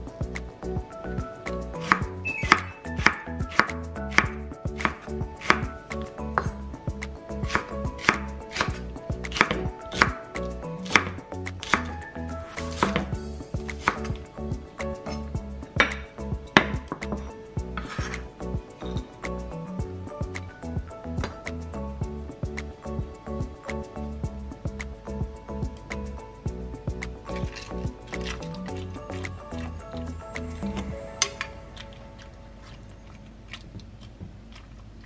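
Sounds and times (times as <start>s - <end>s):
soft background music: 0.0s - 35.0s
knife chopping on wooden board: 1.8s - 5.7s, 7.5s - 10.2s, 10.8s - 11.9s, 12.5s - 13.1s, 13.8s - 14.2s, 15.8s - 18.2s.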